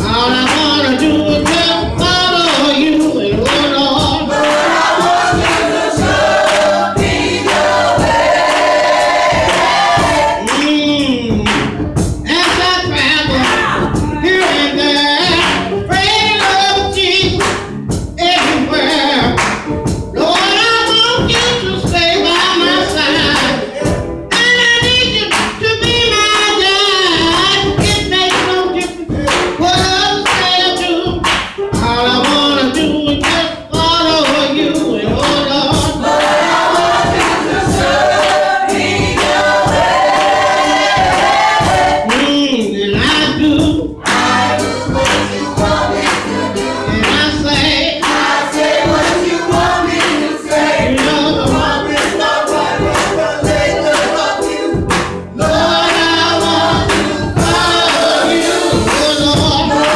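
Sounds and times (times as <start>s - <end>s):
steady beat of strikes: 0.0s - 26.5s, 27.1s - 59.9s
group gospel singing: 0.0s - 59.9s.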